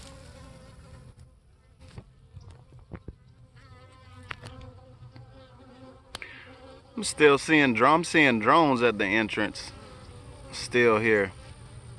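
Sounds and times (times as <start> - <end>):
bees buzzing: 0.0 - 11.9.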